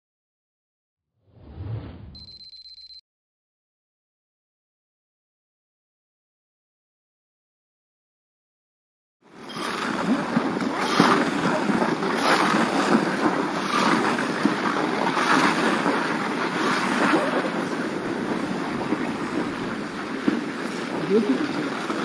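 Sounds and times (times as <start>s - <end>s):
skis scraping over snow: 9.3s - 22.0s
wind buffeting microphone: 10.0s - 22.0s.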